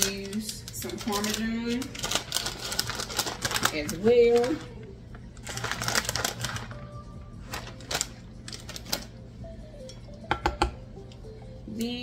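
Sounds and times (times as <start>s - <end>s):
plastic bag crinkling: 0.0s - 9.2s
quiet background music: 0.0s - 12.0s.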